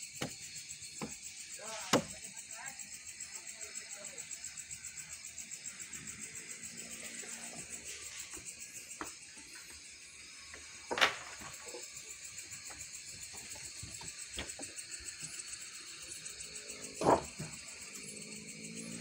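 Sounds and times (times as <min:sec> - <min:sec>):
night insects chorus: 0:00.0 - 0:19.0
wooden planks clattering: 0:10.5 - 0:11.9, 0:17.0 - 0:17.6
timber knocks: 0:17.0 - 0:17.6.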